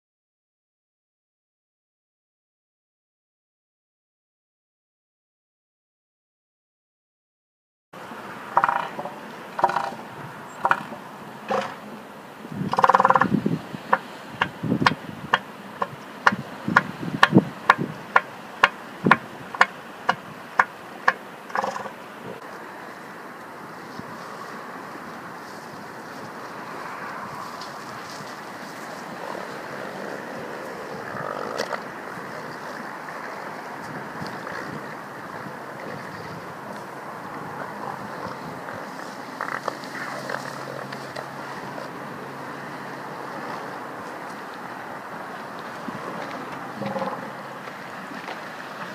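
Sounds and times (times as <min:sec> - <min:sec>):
surf on rocky shore: 0:08.0 - 0:48.9
wind on microphone: 0:08.6 - 0:20.6, 0:23.5 - 0:48.9.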